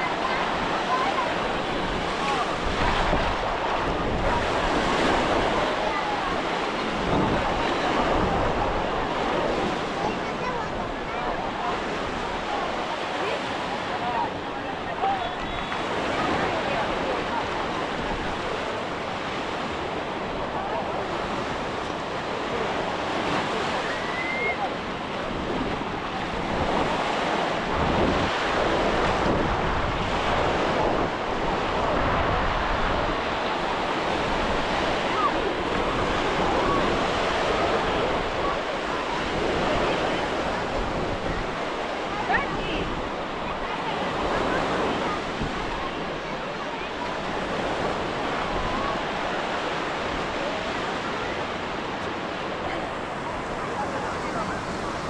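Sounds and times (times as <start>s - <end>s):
wind rumbling on microphone: 0.0s - 12.9s, 24.7s - 55.0s
faint voices of people: 0.0s - 55.0s
ocean surf breaking: 0.0s - 55.0s.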